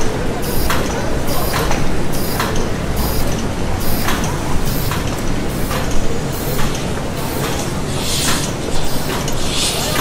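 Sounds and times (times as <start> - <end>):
hissing clanking machine strokes: 0.4 - 10.0
factory machinery rumbling: 2.8 - 10.0.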